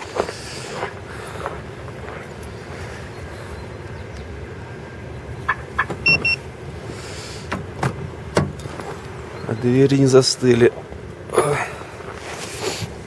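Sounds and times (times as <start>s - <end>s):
car alarm beeps: 5.5s - 6.5s.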